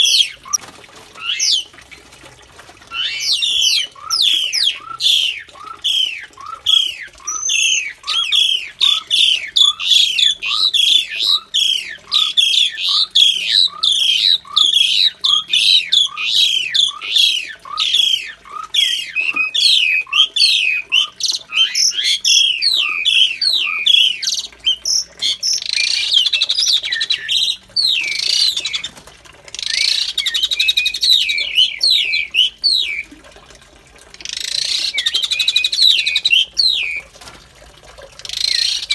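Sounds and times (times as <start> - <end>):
starlings calling: 0.0 - 0.6, 1.2 - 1.6, 2.9 - 28.9, 29.6 - 33.0, 34.2 - 37.0, 38.2 - 38.9
harsh bird chattering: 2.9 - 28.9.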